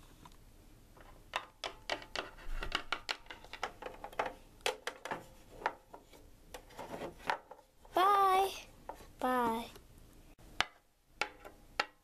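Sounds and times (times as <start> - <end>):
plastic toys clicking and tapping: 1.0 - 7.7.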